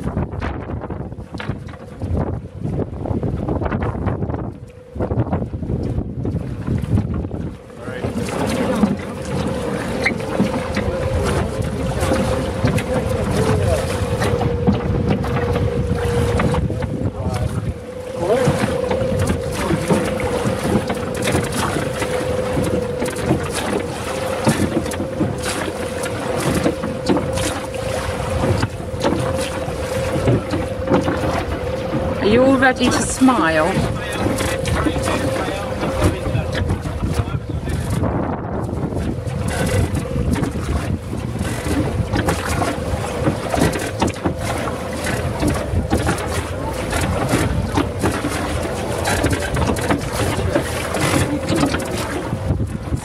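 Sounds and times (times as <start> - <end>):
oars knocking and splashing: 0.0 - 53.0
water noise: 0.0 - 53.0
wind on microphone: 0.0 - 53.0
steady hum: 7.0 - 37.0.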